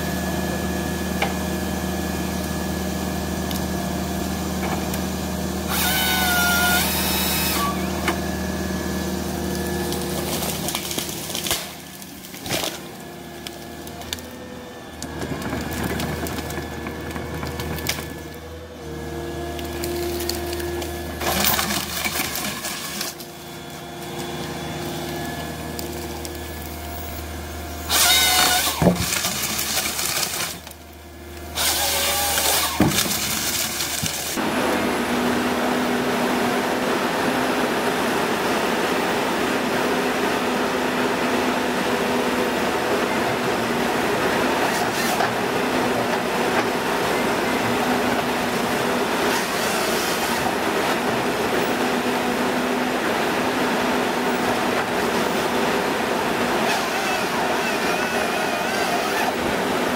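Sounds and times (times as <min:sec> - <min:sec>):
harvester engine and hydraulics: 0:00.0 - 0:59.9
harvester head sawing logs: 0:00.0 - 0:59.9.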